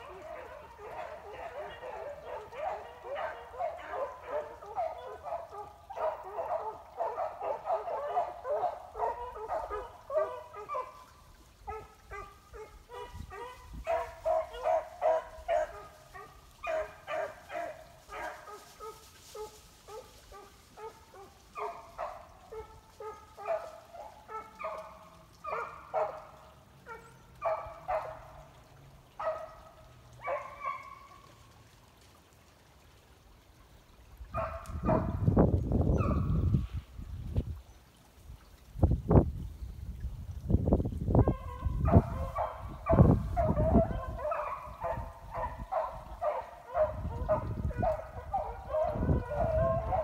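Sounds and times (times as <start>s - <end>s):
dogs baying: 0.0s - 11.0s, 11.7s - 28.3s, 34.4s - 35.2s, 41.2s - 50.0s.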